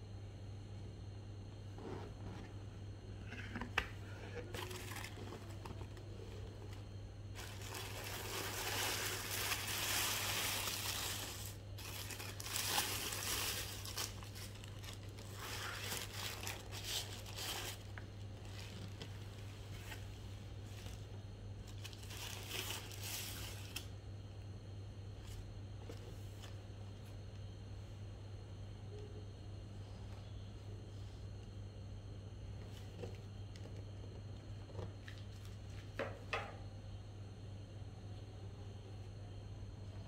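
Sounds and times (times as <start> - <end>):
tissue paper crinkling: 4.4 - 20.0, 21.7 - 23.8.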